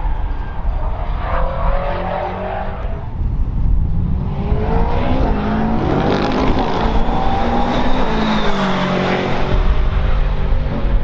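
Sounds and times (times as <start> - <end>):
race car accelerating: 0.0 - 3.2, 3.8 - 11.0.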